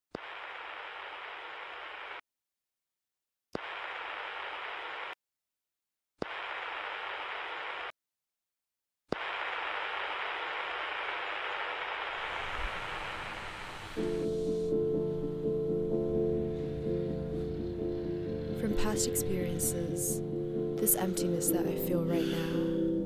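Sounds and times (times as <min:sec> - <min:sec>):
static hiss bursts: 0:09.1 - 0:14.8
sustained musical chord: 0:14.0 - 0:23.0.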